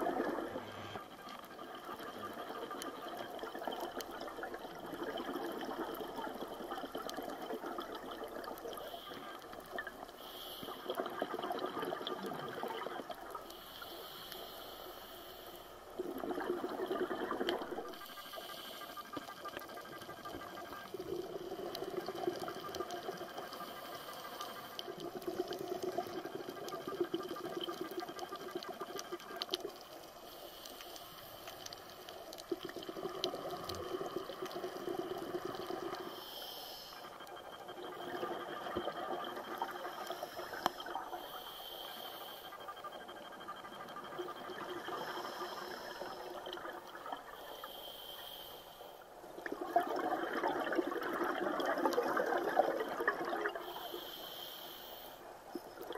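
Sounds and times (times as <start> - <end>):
underwater bubbling rushing water: 0.0 - 13.5, 15.9 - 18.3, 18.9 - 23.8, 24.4 - 30.0, 31.6 - 36.1, 37.1 - 41.3, 49.3 - 53.8
hiss: 10.2 - 11.0, 13.5 - 15.8, 18.0 - 19.6, 36.0 - 37.1, 39.9 - 42.6, 47.4 - 49.0, 53.6 - 55.3.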